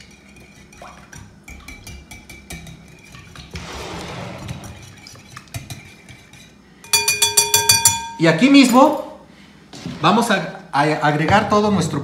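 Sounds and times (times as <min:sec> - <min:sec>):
whisk clicking against glass bowl: 0:00.0 - 0:03.5
liquid swishing: 0:02.9 - 0:06.7.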